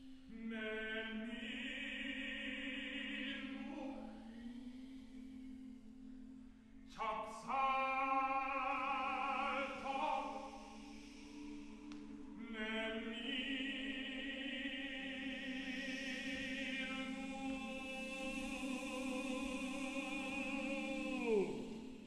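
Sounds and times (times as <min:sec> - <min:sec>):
choir singing sustained chords: 0:00.0 - 0:22.0.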